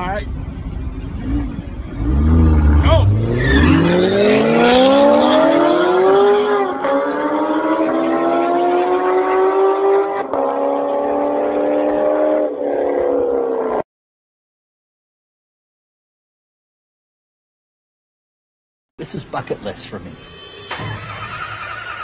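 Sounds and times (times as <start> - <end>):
car engine revving through gears: 1.2 - 13.8.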